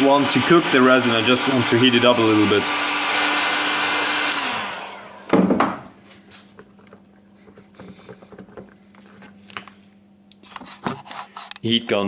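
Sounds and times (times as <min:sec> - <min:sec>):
heat gun whine: 0:00.0 - 0:05.6
loud knock of tool set down: 0:05.3 - 0:05.9
wooden stick stirring in tin can: 0:06.6 - 0:09.4.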